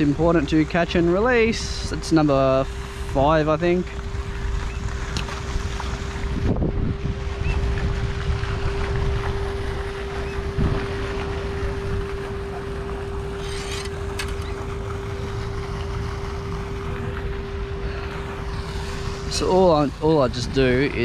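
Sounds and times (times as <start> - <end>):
steady single-pitched hum: 0.0 - 21.0
wind buffeting microphone: 6.2 - 12.2.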